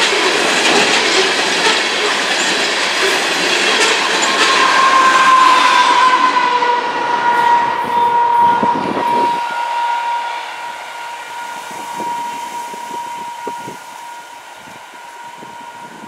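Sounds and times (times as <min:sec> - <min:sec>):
freight train on rails: 0:00.0 - 0:16.0
steady high-pitched tone: 0:03.4 - 0:16.0.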